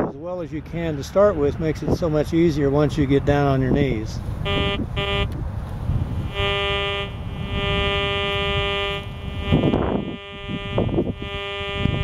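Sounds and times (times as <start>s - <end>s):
metal detector buzzing tone: 4.5s - 5.4s, 6.2s - 12.0s.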